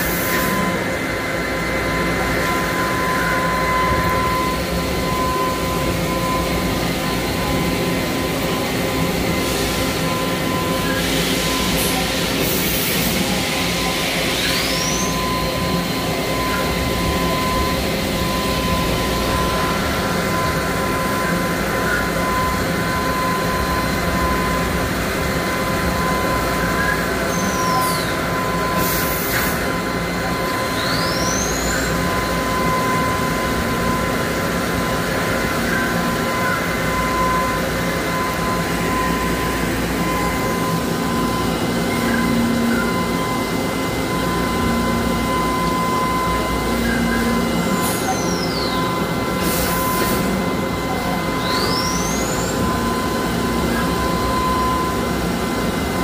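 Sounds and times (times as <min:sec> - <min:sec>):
machine hum: 0:00.0 - 0:56.0
spindle whine: 0:00.0 - 0:56.0.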